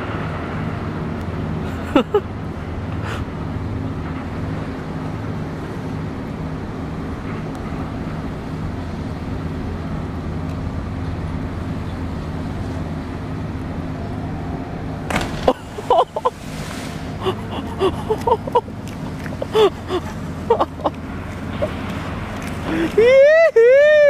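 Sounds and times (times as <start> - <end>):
low machinery hum with tones: 0.0 - 24.0
person splashing into water: 15.1 - 17.2
excited shouts: 23.0 - 24.0.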